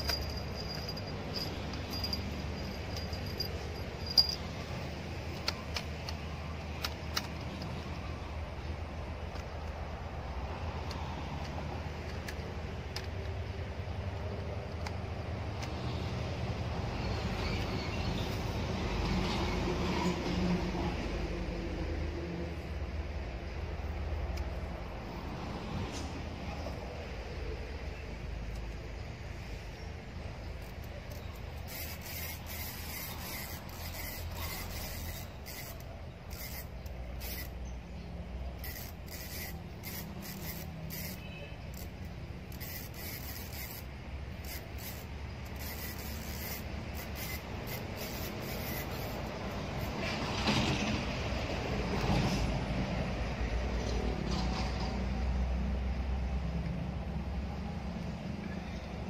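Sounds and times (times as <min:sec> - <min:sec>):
fishing reel clicking: 0:00.0 - 0:07.8, 0:30.5 - 0:37.6, 0:38.5 - 0:50.0
rustling and handling: 0:00.0 - 0:07.8.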